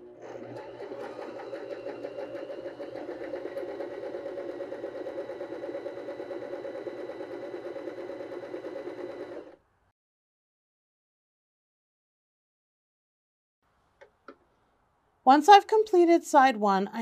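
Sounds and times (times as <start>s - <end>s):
sewing machine stitching: 0.0s - 9.6s.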